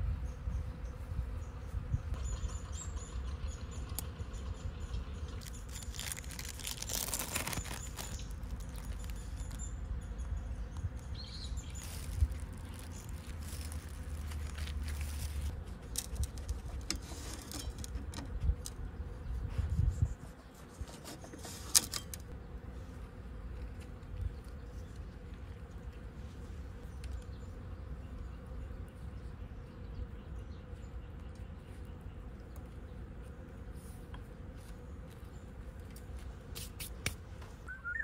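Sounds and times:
insects chirping: 2.2s - 16.4s.

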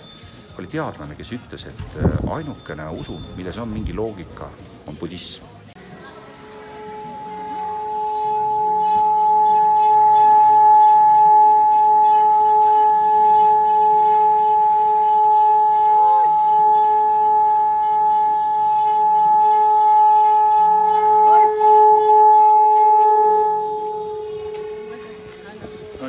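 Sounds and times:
gong droning: 6.1s - 26.0s.

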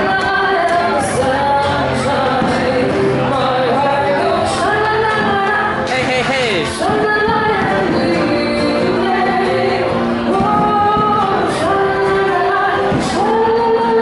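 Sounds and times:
woman singing long notes: 6.7s - 14.0s.

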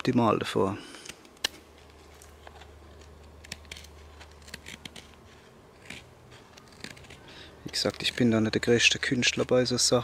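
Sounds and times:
knife scraping stick: 2.0s - 9.5s.

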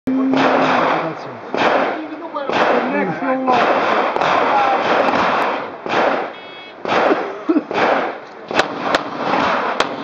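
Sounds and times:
loud pistol shots: 0.3s - 10.0s
shot timer start beep: 6.4s - 6.8s.

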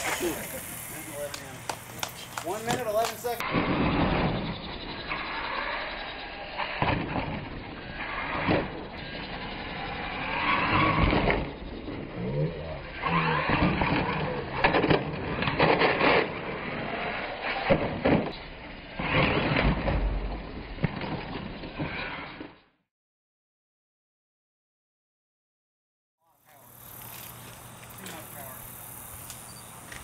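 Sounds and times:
toy truck tyres skidding: 0.0s - 12.0s.

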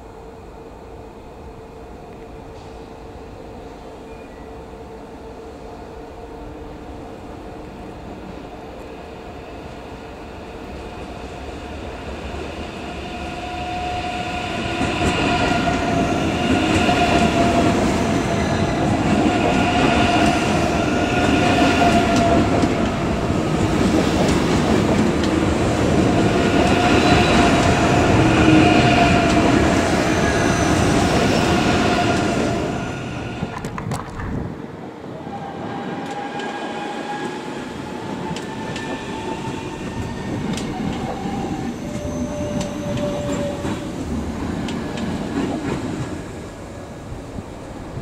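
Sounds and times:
electric train whine: 0.0s - 48.0s
wheels rumbling on rail: 35.4s - 48.0s.

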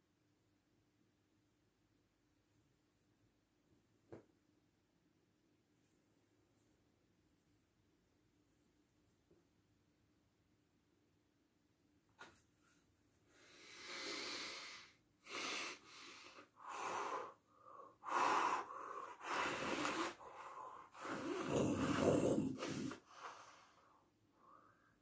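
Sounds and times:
man blowing his nose: 13.4s - 17.3s, 18.0s - 23.8s.

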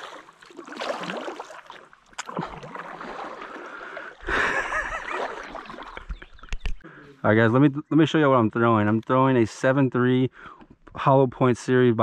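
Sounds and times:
paddle splashing water: 0.0s - 6.8s
water lapping at hull: 0.0s - 6.8s.

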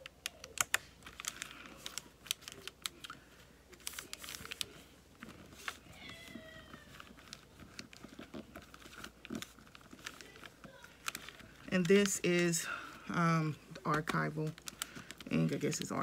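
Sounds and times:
paper rustling with small ticks: 0.0s - 16.0s.

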